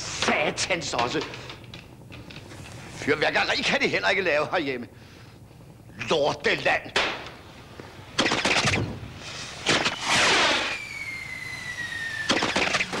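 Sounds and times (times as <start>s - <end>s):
fireworks bursting: 8.2s - 13.0s
rocket whistling in flight: 8.6s - 13.0s.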